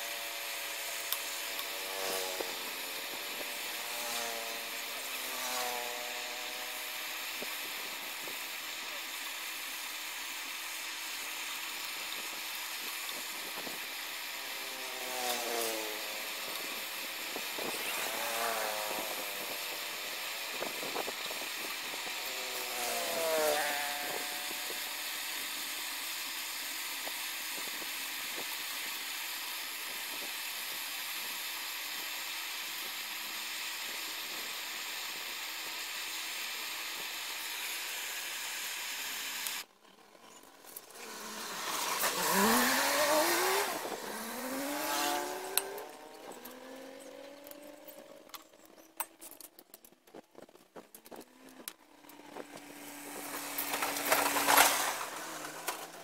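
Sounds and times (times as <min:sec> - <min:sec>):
rising gliding tones: 0:41.0 - 0:49.0.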